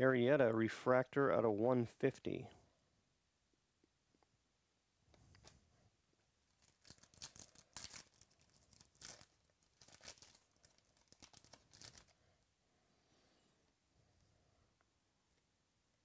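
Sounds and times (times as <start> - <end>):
foil wrapper tearing and crinkling: 6.5 - 12.2.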